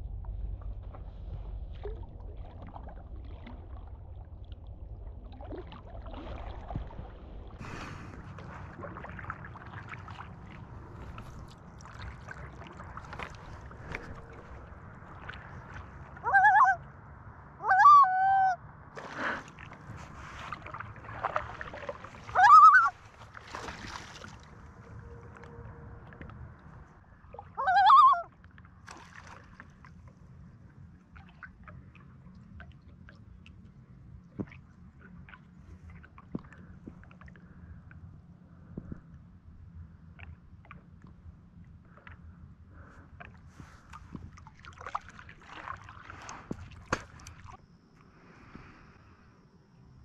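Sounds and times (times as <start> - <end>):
paddle swishing in water: 5.0 - 16.8, 19.0 - 28.0, 42.8 - 47.6
loon calling: 16.2 - 16.9, 17.6 - 18.6, 22.2 - 23.0, 27.4 - 28.3.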